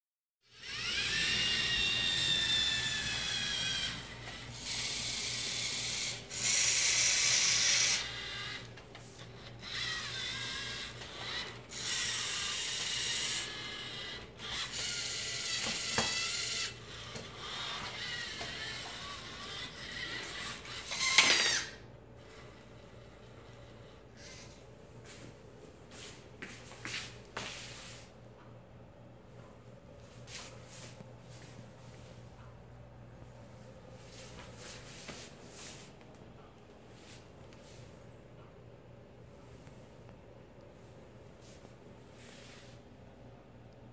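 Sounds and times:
robot motors whirring: 0:00.5 - 0:08.7, 0:09.3 - 0:22.5.

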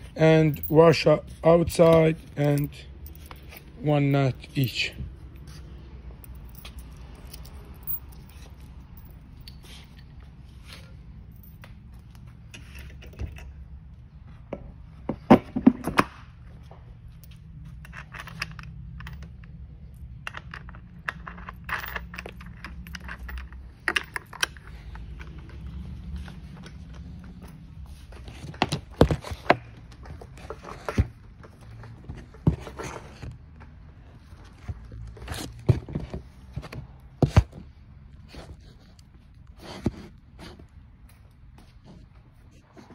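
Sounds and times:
metal washers and nut clinking: 0:00.0 - 0:13.6, 0:17.1 - 0:29.5.

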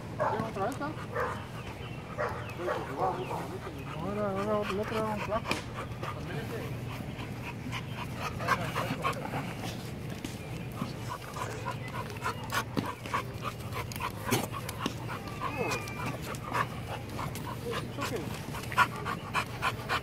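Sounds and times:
dog panting: 0:00.2 - 0:20.0
dog whining: 0:14.2 - 0:17.0.

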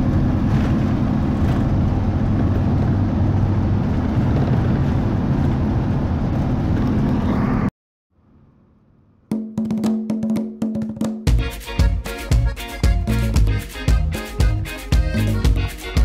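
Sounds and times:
coach engine hum and road noise: 0:00.0 - 0:07.7, 0:11.3 - 0:16.0.

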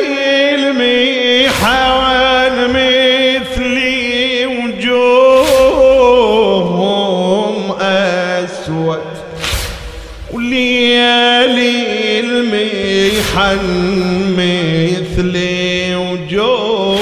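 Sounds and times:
man singing into a microphone: 0:00.0 - 0:09.4, 0:10.3 - 0:17.0
short sharp noisy burst: 0:05.4 - 0:06.4, 0:09.3 - 0:11.6, 0:12.9 - 0:15.8.

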